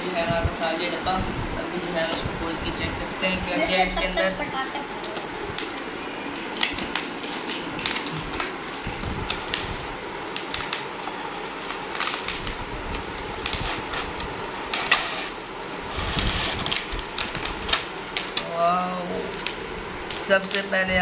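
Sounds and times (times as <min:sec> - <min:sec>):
cardboard packaging scraping and rustling: 0:09.3 - 0:17.9.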